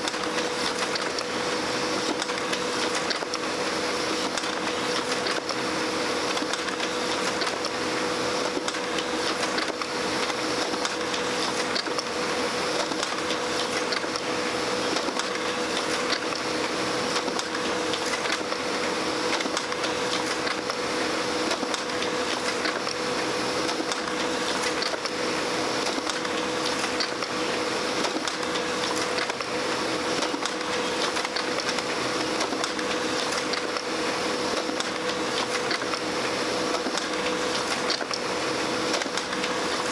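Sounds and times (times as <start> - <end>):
laser printer whirring: 0.0 - 39.9.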